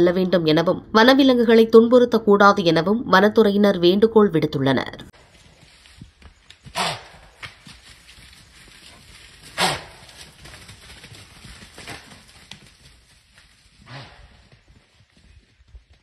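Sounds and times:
faint forest background: 0.0s - 16.0s
large animal harsh calls: 6.7s - 7.3s, 9.5s - 10.0s.

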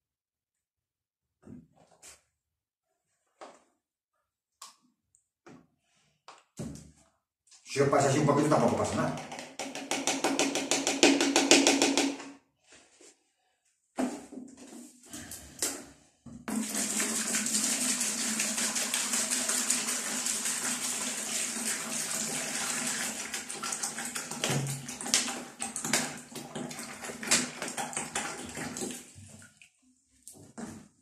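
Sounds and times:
water pouring into plastic bucket: 16.5s - 29.6s
water glugging and splashing: 23.1s - 30.8s.

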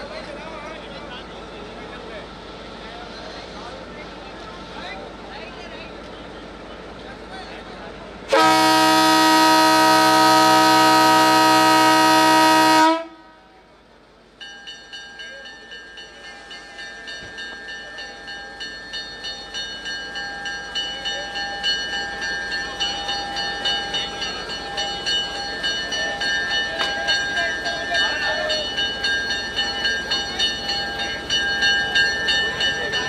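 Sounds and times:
locomotive whine and clatter: 3.4s - 33.0s
diesel locomotive horn blast: 8.3s - 13.7s.

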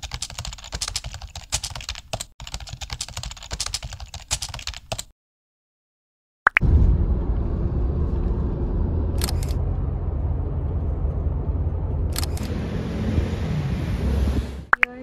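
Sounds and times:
car cabin road rumble: 6.6s - 14.7s.

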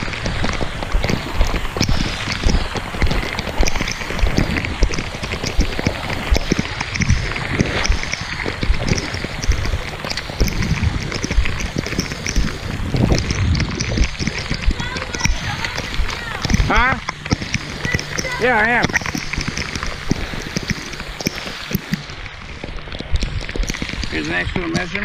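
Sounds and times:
rain ticking: 0.0s - 25.0s
wind gusting against microphone: 0.0s - 25.0s.

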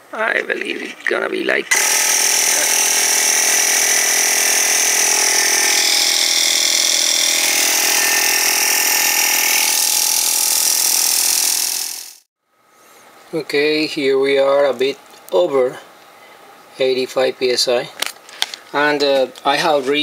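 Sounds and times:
air compressor running: 1.7s - 12.3s.

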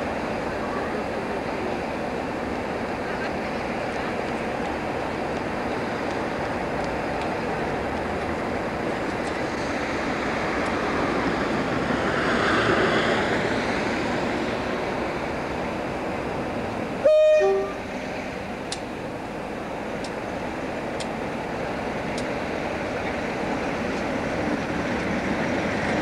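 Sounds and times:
steady background noise: 0.0s - 26.0s
two-tone locomotive horn: 17.0s - 17.8s.

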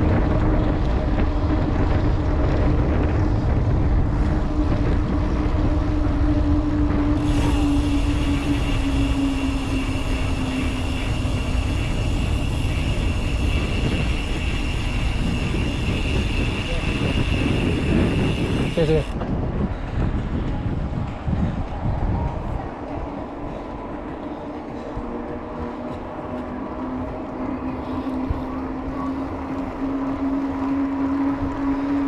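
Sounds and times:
steady hum: 0.0s - 19.1s
bike tyre rumble on asphalt: 0.0s - 32.0s
wind rushing over microphone: 0.0s - 32.0s.

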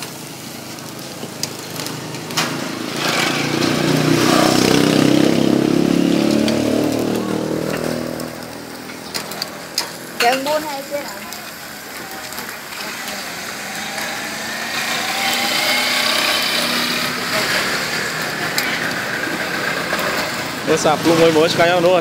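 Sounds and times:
meat sizzling on a grill: 0.0s - 22.0s
vehicle engine passing by: 1.8s - 9.8s, 13.0s - 22.0s.

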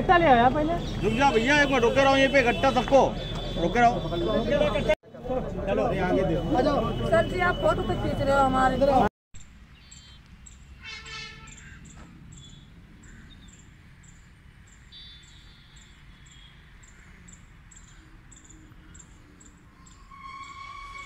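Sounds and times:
low outdoor background noise: 0.0s - 21.0s
faint high insect chirp: 12.4s - 21.0s.

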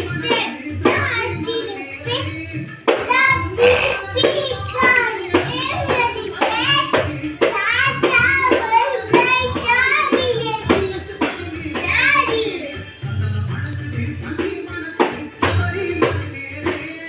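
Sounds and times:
child singing: 0.0s - 13.0s
tambourine strikes: 2.9s - 12.7s, 13.6s - 17.0s.

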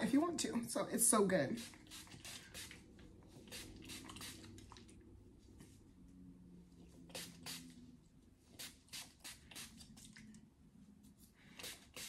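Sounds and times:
spray bottle squirting mist: 1.6s - 2.8s, 3.4s - 4.6s, 7.1s - 7.7s, 8.6s - 9.9s, 11.6s - 12.0s.

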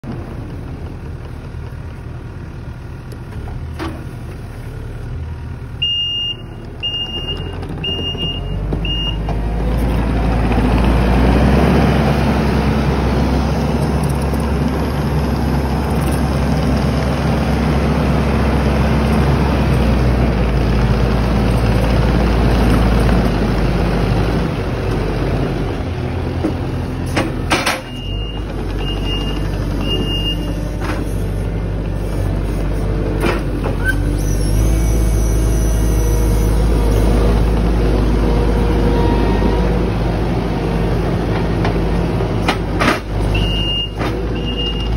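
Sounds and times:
diesel engine running: 0.0s - 44.9s
backup alarm beeping: 5.8s - 9.3s.

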